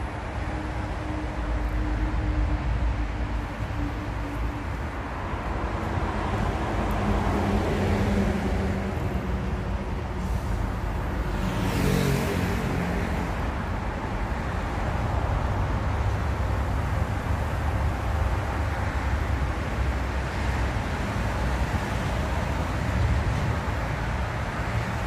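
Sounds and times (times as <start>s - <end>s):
road traffic rumble: 0.0s - 25.0s
vehicle passing close by: 5.9s - 13.8s.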